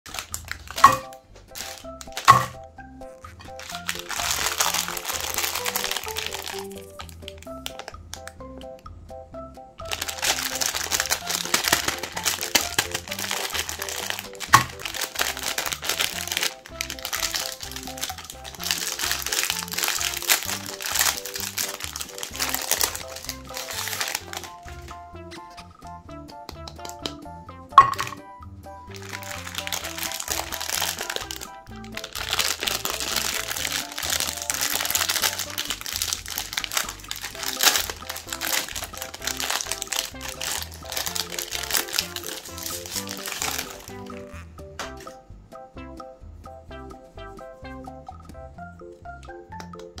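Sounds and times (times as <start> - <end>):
plastic wrapper crinkling: 0.1 - 2.6, 3.2 - 8.4, 9.8 - 25.0, 27.8 - 28.2, 28.9 - 44.4
wrapper tearing: 0.1 - 2.6, 3.4 - 8.3, 9.8 - 25.0, 28.9 - 44.4
background music: 0.1 - 50.0
sharp crack: 10.0 - 25.0.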